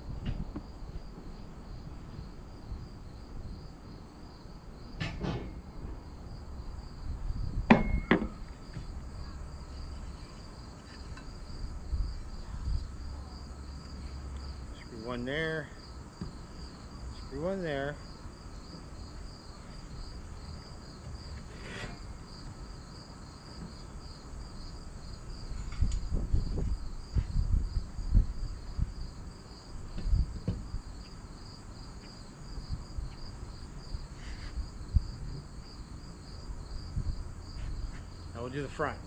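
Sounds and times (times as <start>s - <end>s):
insects chirping: 0.0s - 39.0s
metal bars knocking on roof: 7.7s - 8.4s.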